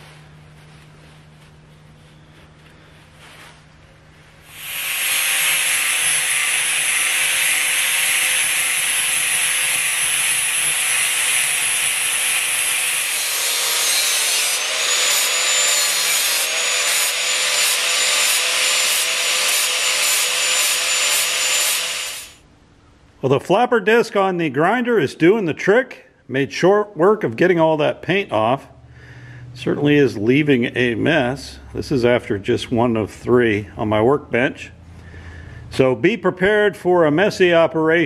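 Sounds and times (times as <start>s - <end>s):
angle grinder grinding paint: 4.5s - 22.4s.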